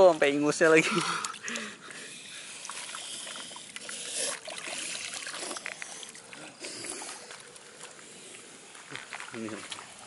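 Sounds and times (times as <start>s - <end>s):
muddy water sloshing and splashing: 0.0s - 10.0s.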